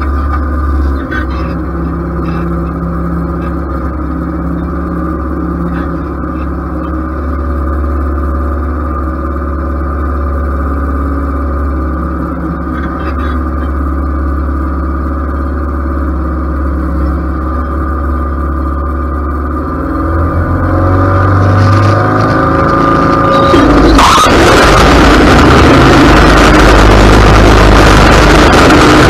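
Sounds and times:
riding lawn mower running: 0.0s - 29.0s.

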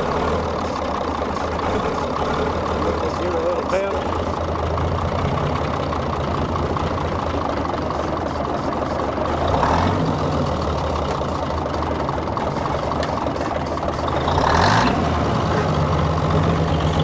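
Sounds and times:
diesel truck engine revving: 0.0s - 17.0s.

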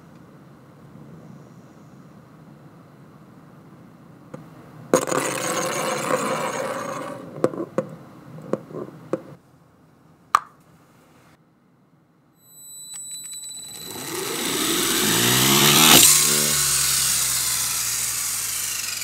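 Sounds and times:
spinning top clattering: 5.0s - 7.6s, 12.8s - 19.0s
spinning top rattling and scraping: 5.0s - 7.8s, 13.2s - 19.0s
sharp clink: 12.4s - 18.4s.

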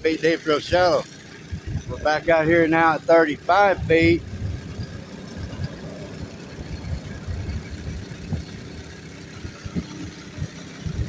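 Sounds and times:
boat motor low rumble: 0.0s - 11.0s.

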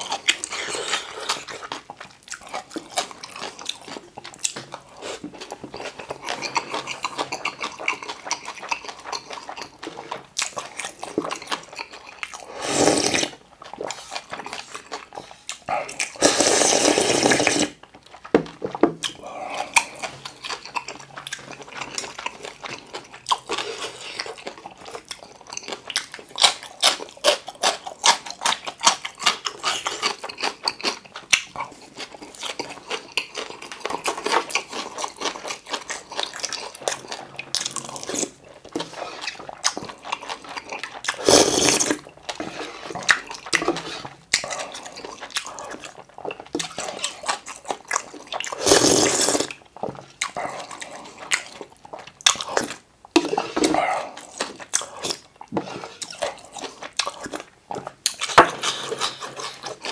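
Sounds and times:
wet chewing: 0.0s - 59.9s
noodle slurping: 12.4s - 17.8s, 37.8s - 49.6s
loud slurp of broth: 12.5s - 13.3s, 16.2s - 17.8s, 41.1s - 42.0s, 48.6s - 49.5s.

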